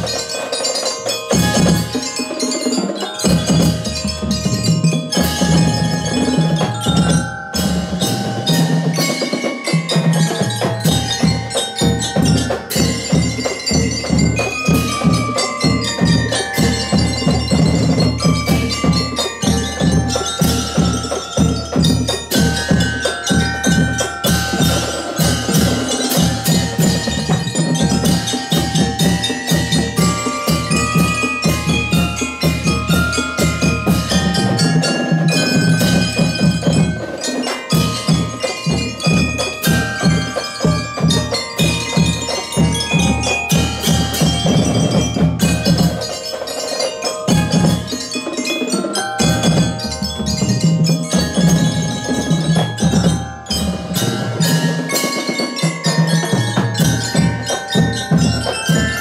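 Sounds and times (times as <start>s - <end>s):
bell lyres ringing melody: 0.0s - 59.0s
bass and snare drums beat: 1.2s - 46.5s, 47.2s - 48.1s.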